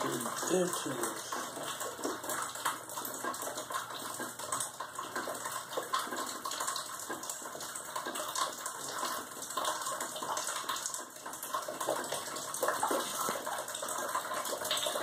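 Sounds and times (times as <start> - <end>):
water dripping onto floor: 0.0 - 15.0.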